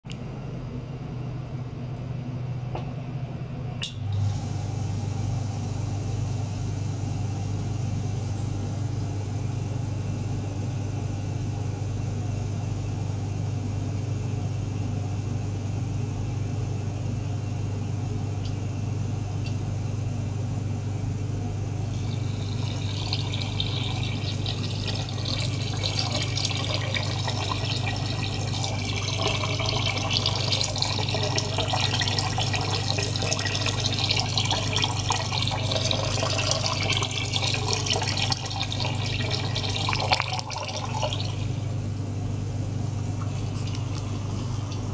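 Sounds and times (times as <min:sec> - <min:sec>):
water pump humming: 0:03.8 - 0:11.9, 0:21.6 - 0:44.9
water splashing and bubbling: 0:22.0 - 0:41.6.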